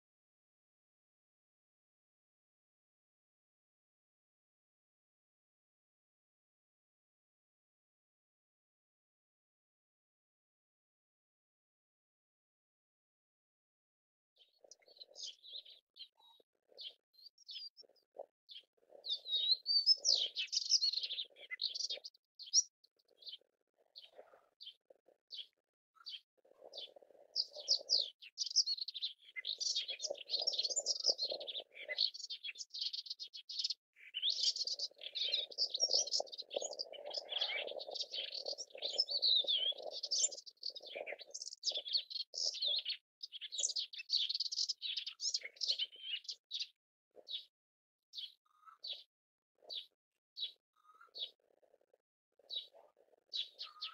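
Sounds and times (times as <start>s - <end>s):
warbler singing: 14.4s - 47.5s, 48.2s - 51.8s, 52.4s - 53.9s.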